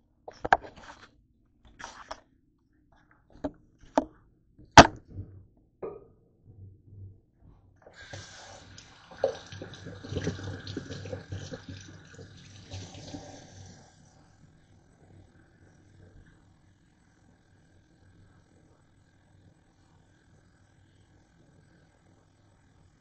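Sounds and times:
sharp knocks: 4.8 - 6.0
tap running into steel sink: 9.1 - 13.2.

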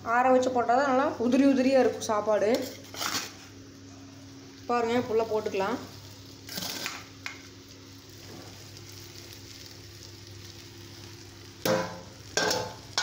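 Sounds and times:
food sizzling in a pan: 1.0 - 13.0.

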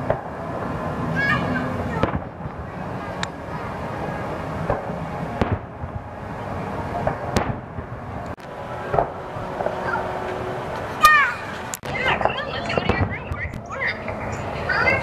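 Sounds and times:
distant fireworks booms: 2.0 - 2.7, 4.6 - 6.2, 7.0 - 9.8, 11.8 - 13.7.

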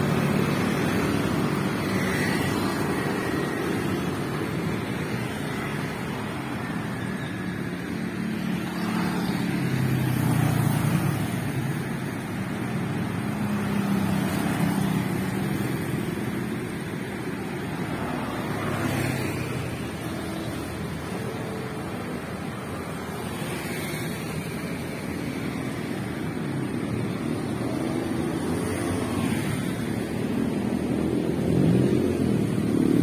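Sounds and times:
motorbikes and cars passing: 0.0 - 33.0.

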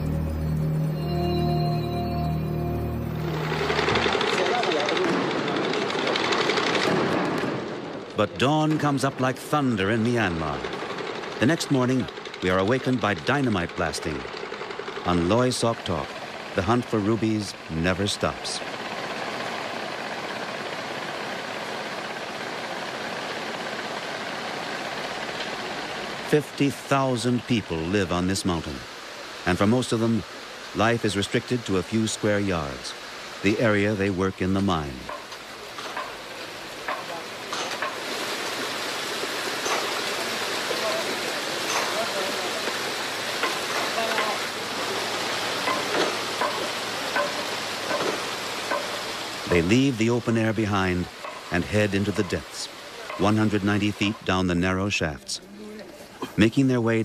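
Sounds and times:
machinery engine drone: 0.0 - 6.5
steady rushing hiss: 9.5 - 56.2.

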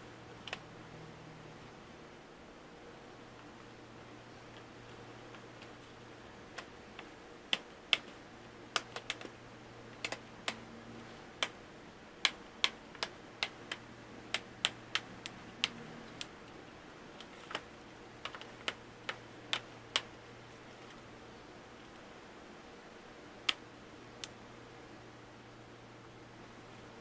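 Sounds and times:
plastic clicks: 6.5 - 9.3.

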